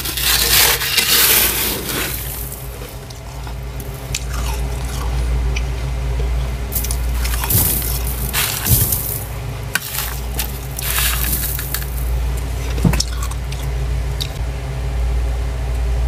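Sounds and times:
bowl scraping frost: 0.0s - 5.3s, 6.7s - 13.1s
steady low hum: 0.0s - 16.0s.

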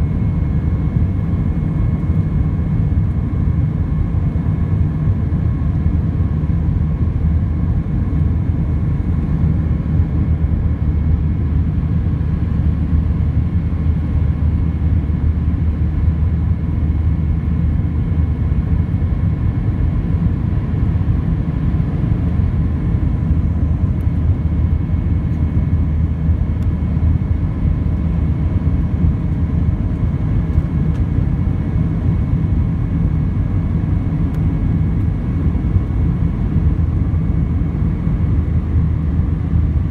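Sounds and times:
airplane cabin engine rumble: 0.0s - 39.9s.

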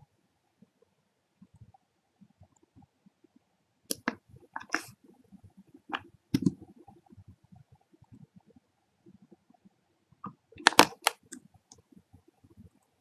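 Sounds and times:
computer mouse clicking: 3.9s - 4.9s, 5.9s - 6.6s, 10.2s - 11.8s.

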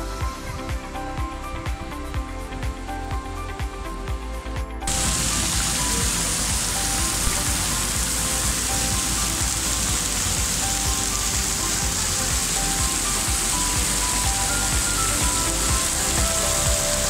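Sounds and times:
waterfall spray onto rock: 4.9s - 17.0s.

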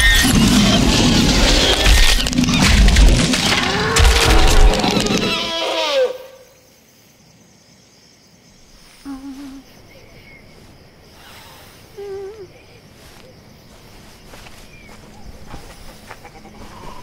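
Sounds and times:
faint steady hiss: 6.2s - 17.0s.

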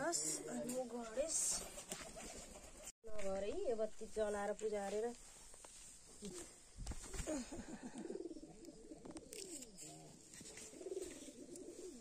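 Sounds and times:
pigeons cooing: 7.1s - 12.0s.

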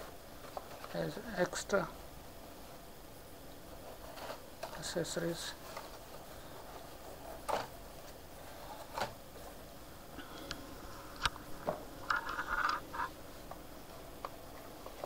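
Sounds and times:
packaging scraping rustle: 3.8s - 9.5s.

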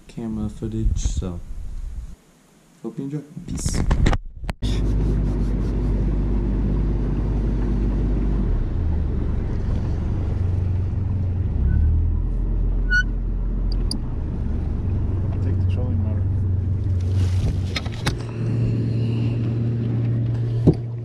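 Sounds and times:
boat motor running: 4.6s - 11.8s, 13.9s - 21.0s.

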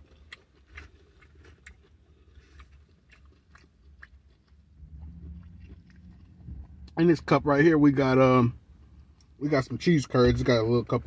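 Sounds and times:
chewing with mouth clicks: 0.0s - 7.1s
low hum: 3.9s - 11.0s.

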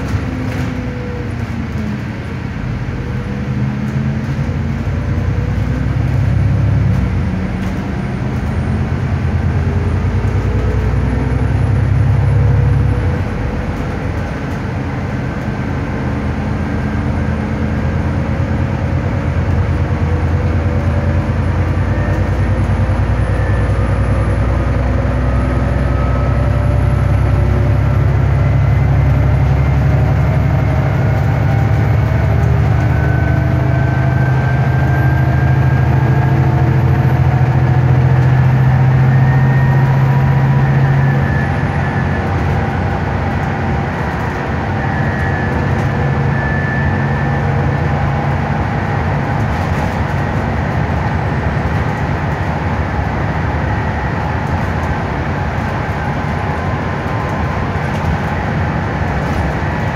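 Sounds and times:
bus engine rumble: 0.0s - 59.9s
drivetrain whine rising: 0.0s - 59.9s.

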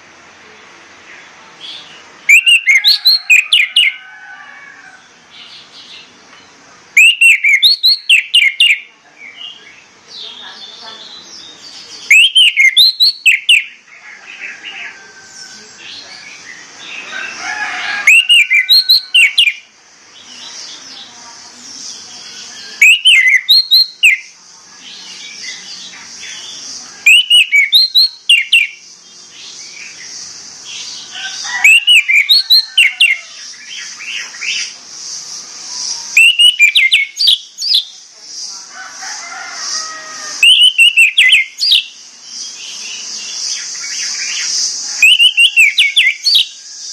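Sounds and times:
steady high hiss: 0.0s - 46.9s
bird whistled calls: 2.3s - 4.0s, 7.0s - 8.9s, 12.0s - 13.8s, 18.0s - 19.6s, 22.6s - 24.3s, 26.3s - 28.8s, 30.8s - 34.8s, 35.6s - 37.9s, 40.4s - 42.6s, 43.5s - 46.9s
faint bird chirps: 4.9s - 38.3s, 39.8s - 46.9s.

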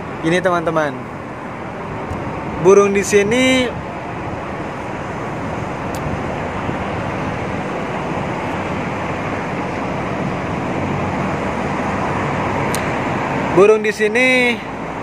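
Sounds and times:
distant road traffic: 0.0s - 15.0s
wind on microphone: 1.6s - 13.5s.

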